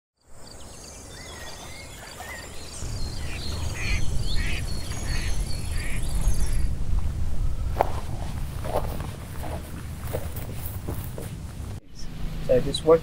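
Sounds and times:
small birds chirping: 0:00.2 - 0:07.8
ducks quacking: 0:01.3 - 0:06.7
low rumble: 0:02.5 - 0:13.0.

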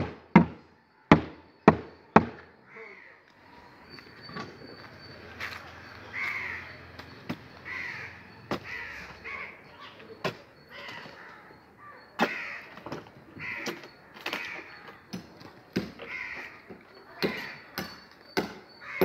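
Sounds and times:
crows cawing: 0:02.6 - 0:04.4, 0:05.0 - 0:10.0, 0:10.6 - 0:15.1, 0:15.9 - 0:19.0
sharp knocks on formwork: 0:17.2 - 0:18.6.

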